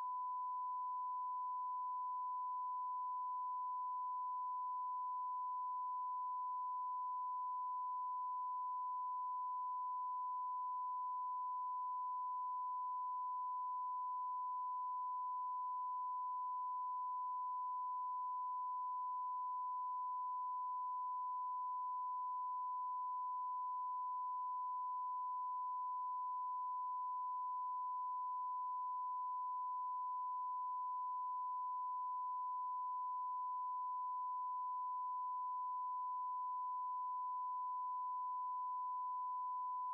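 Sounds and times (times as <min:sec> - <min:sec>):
steady sine-wave tone: 0:00.0 - 0:39.9.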